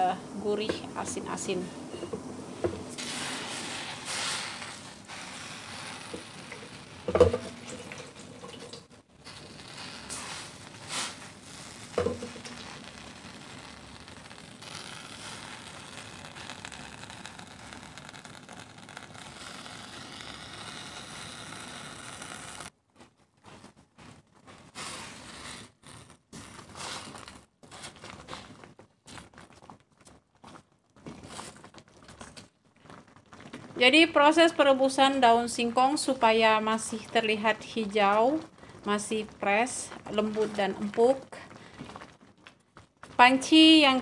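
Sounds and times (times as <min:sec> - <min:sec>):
crackling and rustling: 0:00.0 - 0:44.0
pot boiling: 0:00.0 - 0:44.0.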